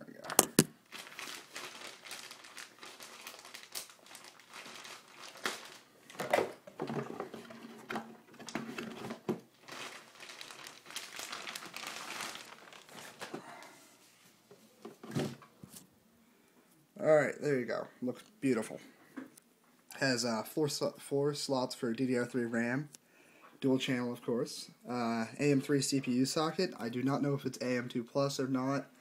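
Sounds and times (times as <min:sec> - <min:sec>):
plastic bag crinkling: 0:00.3 - 0:07.7, 0:08.4 - 0:13.6.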